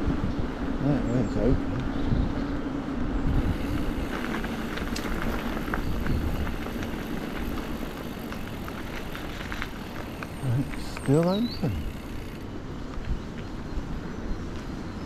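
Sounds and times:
wind on microphone: 0.0s - 9.6s
tyres rolling on road: 3.3s - 12.6s.

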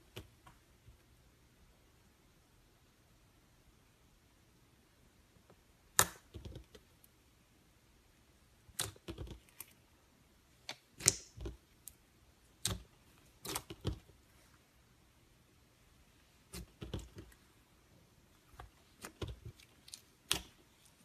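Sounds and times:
slime popping and crackling: 10.8s - 11.9s.

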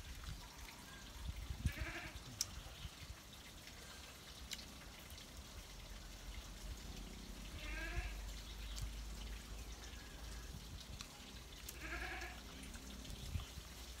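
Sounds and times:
goat bleating: 1.7s - 2.2s, 11.7s - 12.4s.

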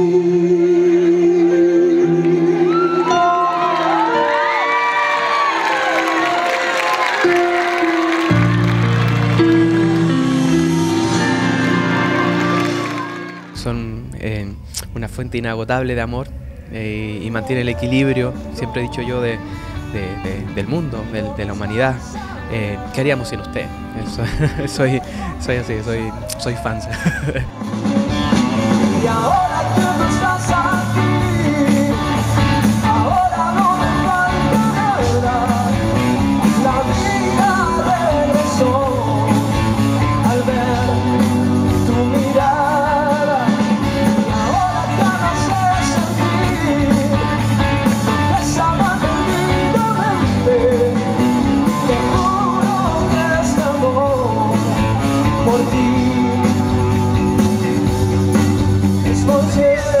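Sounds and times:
man singing lead vocal: 0.0s - 3.8s, 16.7s - 27.4s, 28.6s - 58.0s, 58.9s - 60.0s
rock band playing: 2.0s - 13.7s, 17.8s - 60.0s.

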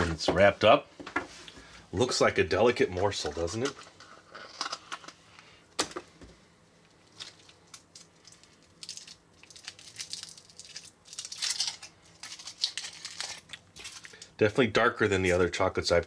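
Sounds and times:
foil wrapper crinkling: 7.0s - 14.4s
chocolate crunching: 7.1s - 14.4s.

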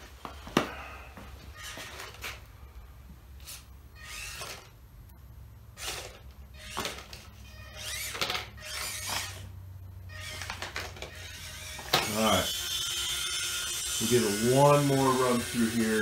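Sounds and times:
small electric motor whirring: 1.5s - 2.4s, 3.4s - 4.8s, 5.8s - 16.0s.

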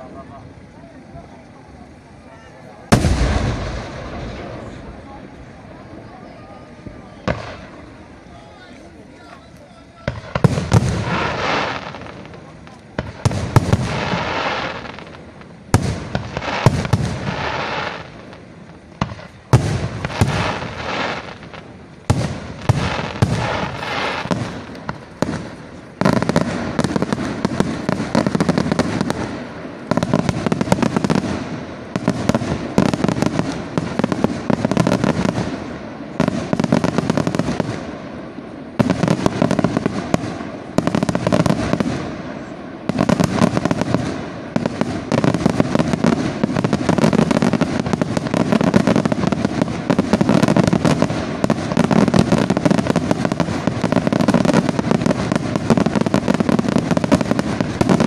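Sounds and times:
fireworks shells bursting: 6.7s - 38.2s.

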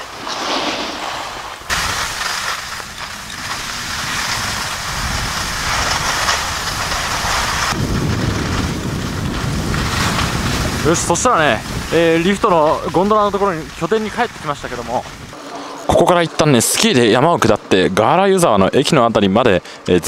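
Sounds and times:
skis scraping over snow: 0.0s - 17.2s
wind buffeting microphone: 1.3s - 15.4s.

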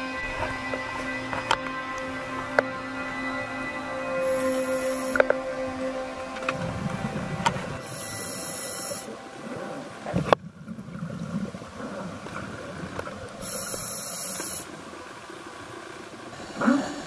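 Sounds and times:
regulator hissing inhalations: 4.2s - 5.4s, 7.8s - 9.2s, 13.4s - 14.7s
rumble of exhaled bubbles: 9.6s - 13.5s.

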